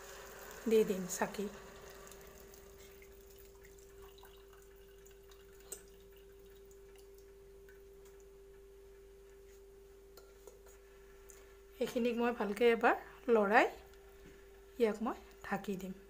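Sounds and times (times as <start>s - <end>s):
steady faint hum: 0.1s - 16.0s
water trickling through strainer: 1.4s - 7.3s.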